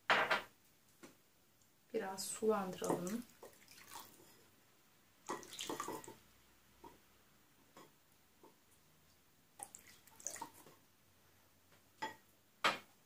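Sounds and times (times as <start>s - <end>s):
wooden spoon stirring paste: 2.2s - 4.5s
water pouring into bowl: 2.7s - 4.3s, 5.2s - 6.2s, 9.6s - 10.7s.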